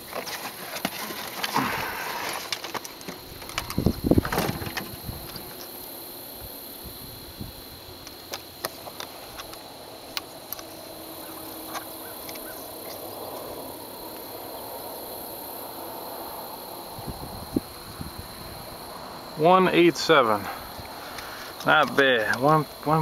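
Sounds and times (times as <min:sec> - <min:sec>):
fishing gear clicks and knocks: 0:00.0 - 0:05.7, 0:21.1 - 0:22.7
high insect buzz: 0:00.0 - 0:23.0.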